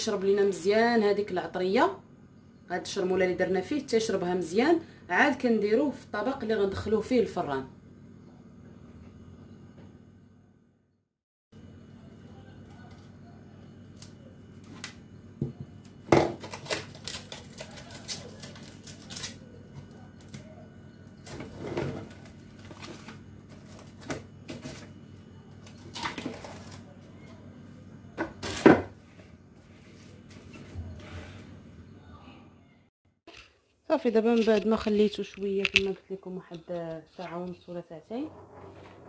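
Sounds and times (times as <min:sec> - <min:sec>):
cling film crinkling: 0:16.5 - 0:19.5.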